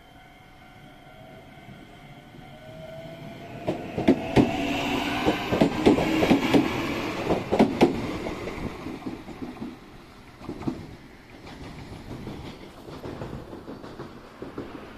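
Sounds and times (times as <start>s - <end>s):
train running rumble: 2.5s - 14.9s
wheels clacking over rail joints: 3.6s - 14.9s.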